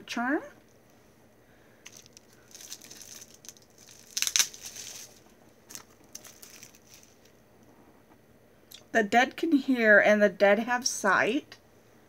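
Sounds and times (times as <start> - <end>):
wrapping crinkling and rustling: 1.8 - 7.4.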